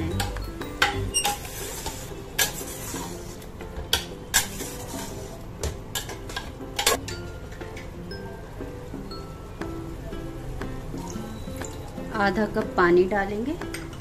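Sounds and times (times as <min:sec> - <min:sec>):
spoon stirring and scraping meat: 0:00.1 - 0:05.4.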